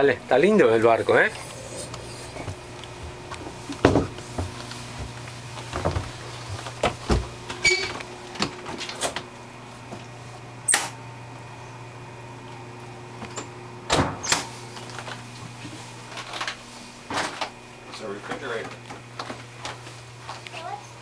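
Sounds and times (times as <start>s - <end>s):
steady low hum: 0.0s - 20.5s
footsteps: 1.1s - 7.6s.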